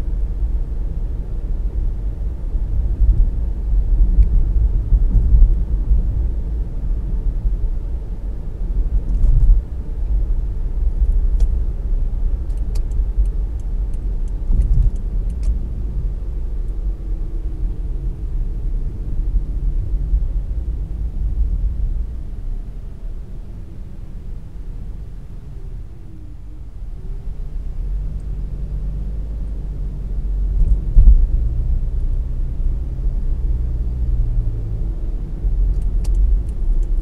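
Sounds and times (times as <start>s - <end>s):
car road and engine rumble: 0.0s - 37.0s
faint light ticks: 4.2s - 4.4s, 11.0s - 11.6s, 12.4s - 15.6s, 28.1s - 28.4s, 35.6s - 37.0s.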